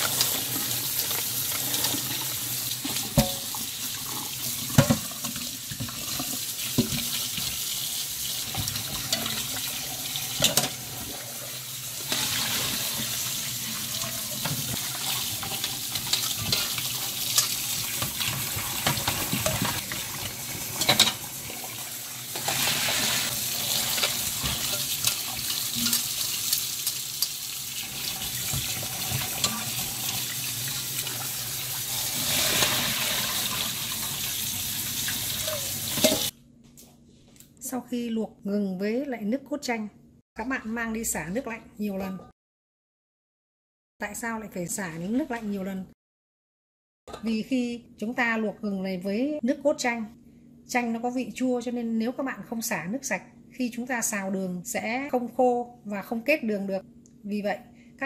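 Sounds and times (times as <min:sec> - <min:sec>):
tap water running into sink: 0:00.0 - 0:36.3.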